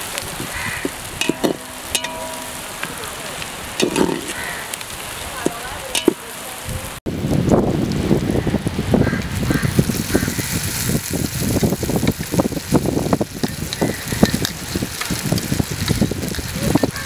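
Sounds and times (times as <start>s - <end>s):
onions sizzling in oil: 0.0s - 17.0s
metal spoon scraping pot: 1.2s - 2.9s, 3.8s - 4.4s.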